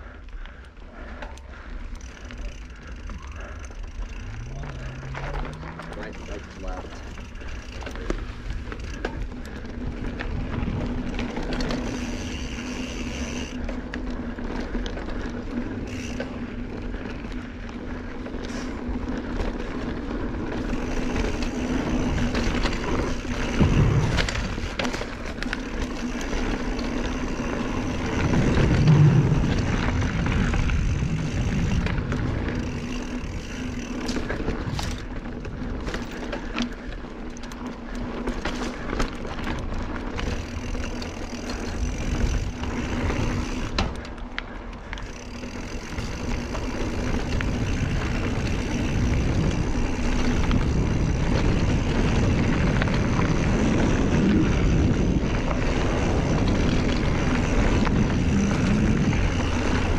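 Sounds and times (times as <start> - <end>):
tyres crunching on loose dirt: 0.0 - 59.9
bike chain and frame clattering: 0.4 - 59.9
wind rushing past microphone: 46.2 - 59.9.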